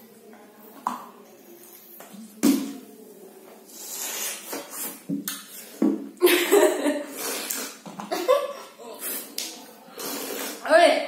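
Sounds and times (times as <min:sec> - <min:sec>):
breathy slurping hiss: 0:03.7 - 0:05.0, 0:07.0 - 0:08.0, 0:08.6 - 0:10.7.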